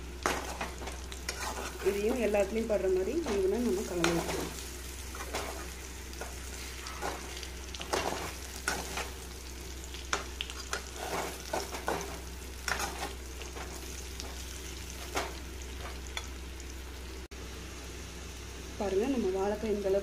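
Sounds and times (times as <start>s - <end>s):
slices frying in oil: 0.0s - 20.0s
spatula scraping a metal pan: 1.3s - 2.0s, 10.7s - 12.0s.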